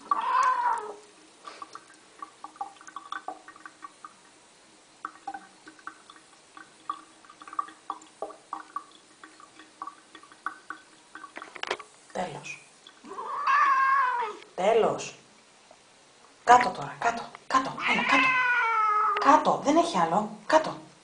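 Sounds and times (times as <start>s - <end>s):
water dripping and splashing: 0.0s - 14.6s
faint steady hum: 0.0s - 21.0s.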